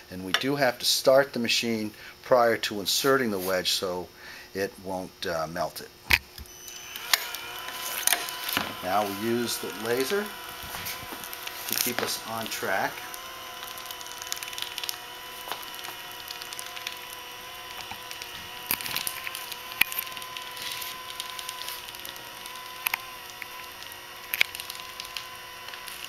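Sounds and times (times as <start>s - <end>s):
crackles and sharp clicks: 6.1s - 26.0s
welder motor whine: 6.1s - 26.0s.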